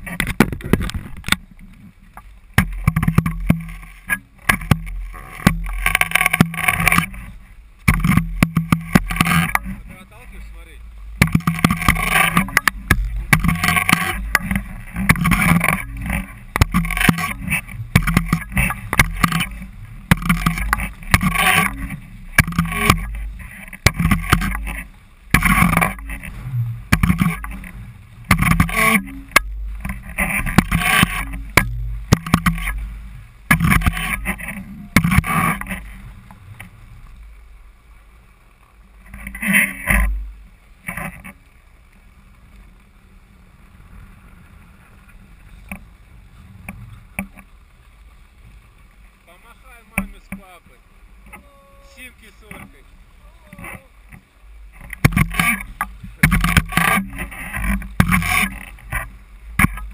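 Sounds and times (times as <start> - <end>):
wind rumble on microphone: 0.0 - 50.3
skis scraping over snow: 0.0 - 59.9.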